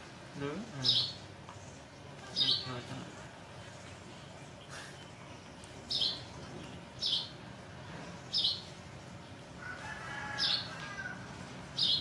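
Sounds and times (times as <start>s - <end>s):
rooster crowing: 9.6s - 11.5s.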